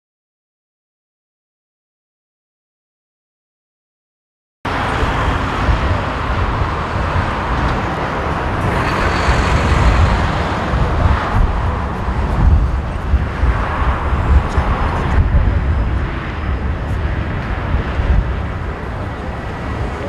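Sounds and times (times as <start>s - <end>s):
jet engine rumble: 4.7s - 20.0s.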